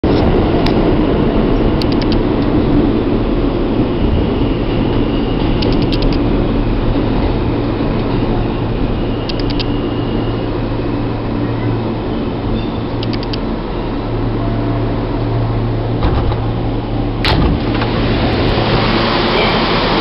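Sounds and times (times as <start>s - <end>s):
subway wheels rumbling on rails: 0.0s - 20.0s.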